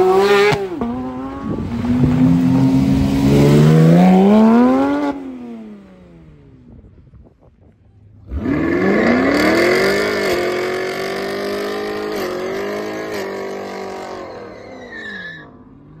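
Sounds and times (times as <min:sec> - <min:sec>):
car engine revving: 0:00.0 - 0:06.4, 0:08.2 - 0:14.6.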